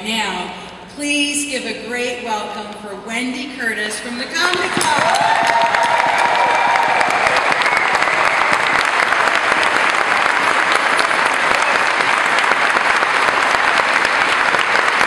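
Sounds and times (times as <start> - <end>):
audience applauding: 4.6 - 15.0.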